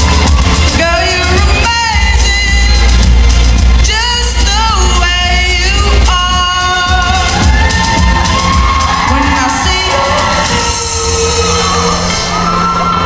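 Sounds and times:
heavy bass backing track: 0.0s - 13.0s
pop song with singing: 0.0s - 13.0s.

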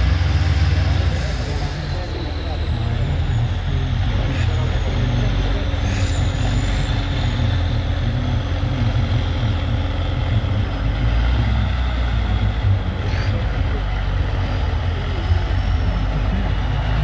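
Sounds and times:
truck engine rumbling under load: 0.0s - 17.0s.

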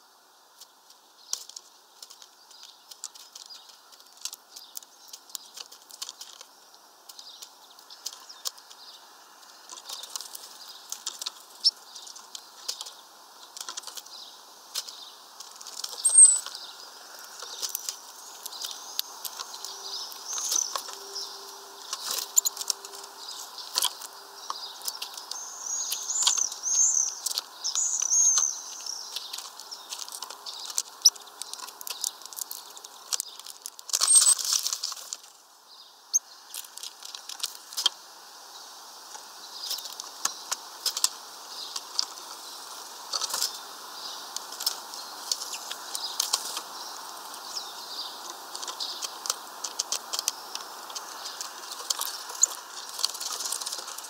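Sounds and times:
beaks pecking seeds on plastic: 0.5s - 54.0s
wings fluttering: 1.3s - 35.4s, 39.0s - 54.0s
short high bird chirps: 16.0s - 16.5s.

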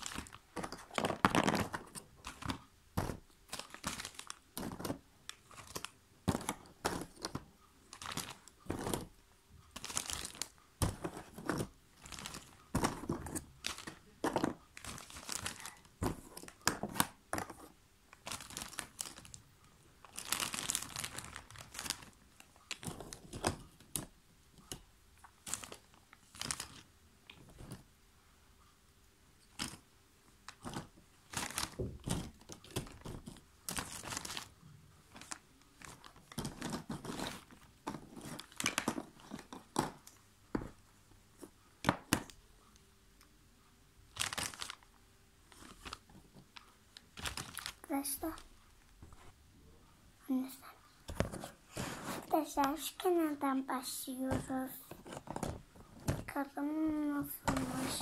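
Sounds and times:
plastic bag crinkling: 0.0s - 17.5s, 18.1s - 19.4s, 20.0s - 24.1s, 24.7s - 27.8s, 29.4s - 29.8s, 30.5s - 40.7s, 44.1s - 44.9s, 45.5s - 48.5s.

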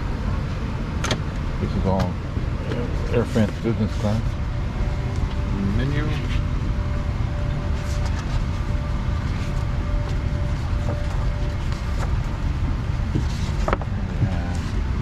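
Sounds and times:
airliner cabin rumble: 0.0s - 15.0s
faint steady hum: 0.0s - 15.0s.

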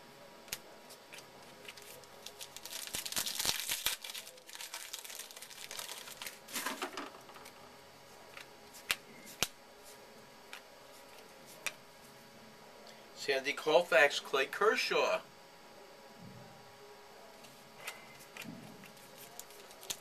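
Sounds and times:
cards being handled: 0.5s - 7.6s, 8.3s - 11.8s, 17.4s - 20.0s
wrapper tearing and crinkling: 1.6s - 7.0s, 18.9s - 20.0s.

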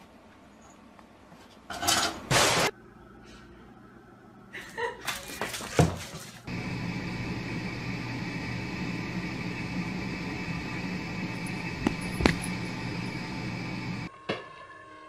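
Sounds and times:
background hum with hiss: 6.5s - 14.1s
short thumps: 11.6s - 12.6s.

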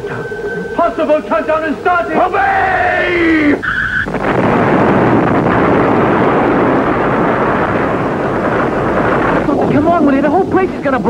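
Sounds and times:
high electronic tone: 0.0s - 4.9s
loud explosion rush: 0.8s - 11.0s.

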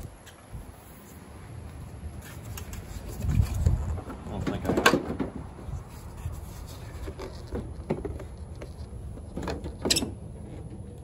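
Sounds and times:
plastic knocks and scraping: 6.8s - 10.9s.

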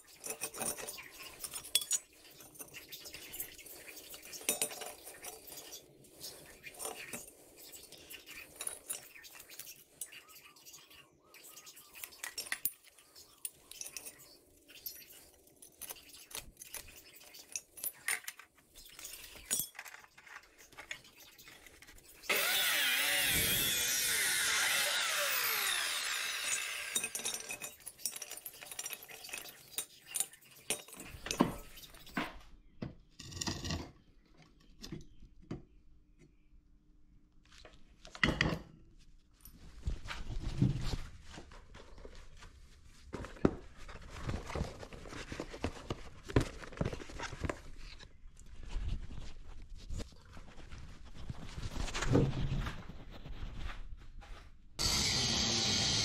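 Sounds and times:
steel pieces clinking and knocking: 0.0s - 5.7s, 12.2s - 20.4s, 24.9s - 31.8s
chop saw cutting steel: 22.3s - 27.2s, 54.8s - 56.0s.

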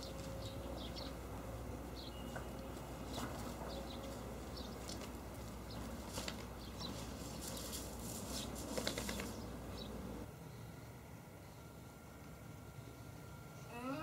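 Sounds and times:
puppies play-fighting on ground: 0.0s - 10.2s.

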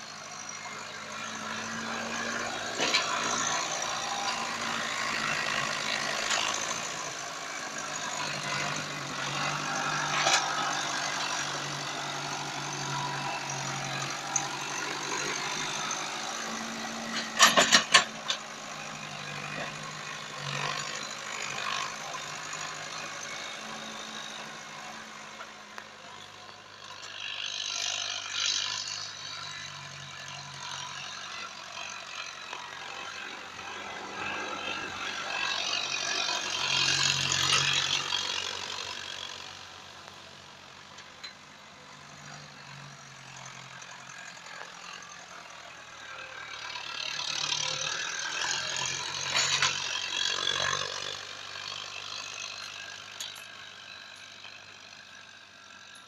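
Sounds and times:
tractor diesel engine under load: 0.0s - 56.0s.

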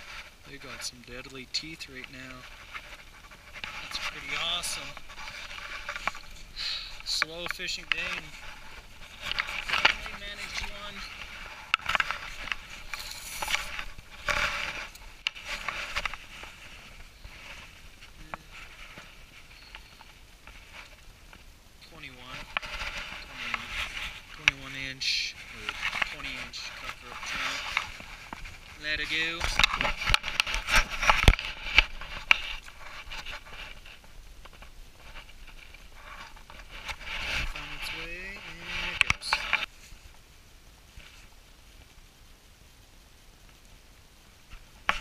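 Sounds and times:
slush and snow crunching: 0.0s - 21.1s, 21.9s - 34.0s
jacket fabric rustling: 0.0s - 40.0s
sharp crackles and clicks: 0.0s - 45.0s.

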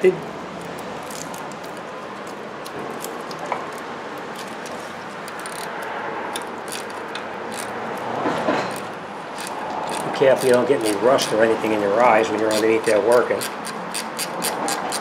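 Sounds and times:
ratcheting wrench clicking: 5.3s - 8.1s, 8.7s - 15.0s.

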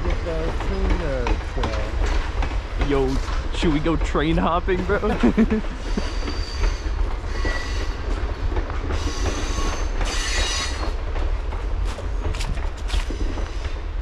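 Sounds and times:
train rumble: 0.0s - 14.0s
wheels clicking over rail joints: 0.0s - 14.0s
metallic wheel squeals: 5.9s - 8.1s, 8.9s - 11.0s.

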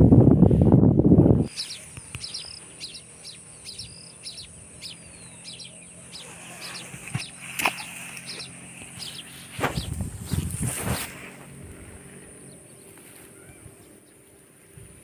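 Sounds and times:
small birds chirping: 1.4s - 15.0s
rough rush of noise: 4.6s - 15.0s.

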